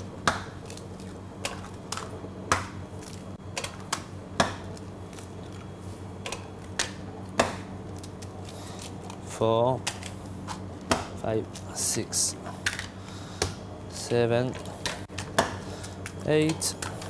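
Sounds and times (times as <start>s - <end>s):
eggs cracking on metal bowl: 0.2s - 9.2s.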